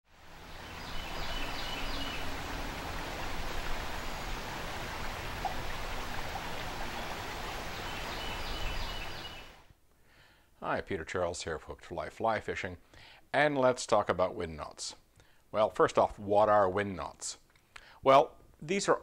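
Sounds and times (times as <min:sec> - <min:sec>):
creek water rushing over rocks: 0:00.1 - 0:09.7.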